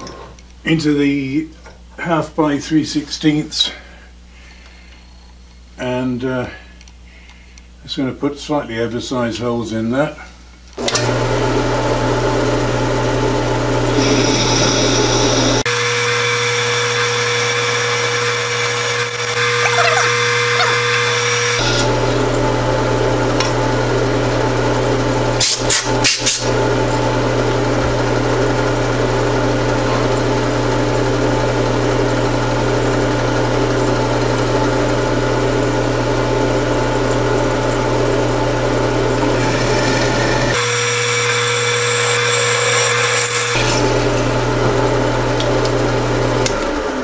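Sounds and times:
drill press motor hum: 10.8 - 47.0
drill cutting through metal: 13.4 - 22.6, 25.4 - 26.7, 39.1 - 46.9.

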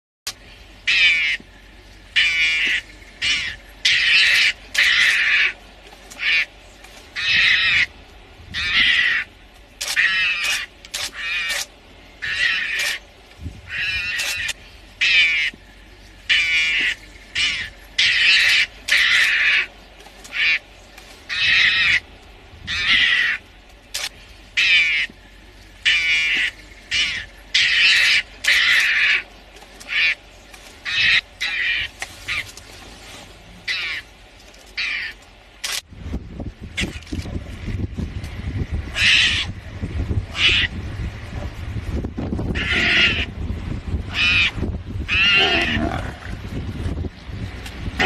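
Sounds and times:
mongoose high-pitched calls: 0.9 - 1.4, 2.1 - 6.5, 39.0 - 39.6, 40.3 - 40.8, 42.5 - 43.3.

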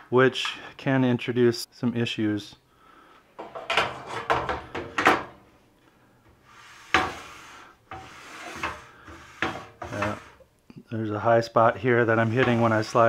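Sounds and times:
fence sliding rasp: 6.4 - 10.4, 11.9 - 13.0
saw fence clacks and scrapes: 6.8 - 10.4.

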